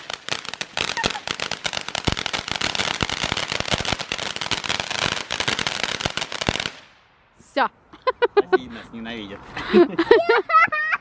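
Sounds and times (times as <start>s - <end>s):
firework crackling and popping: 0.0s - 7.0s.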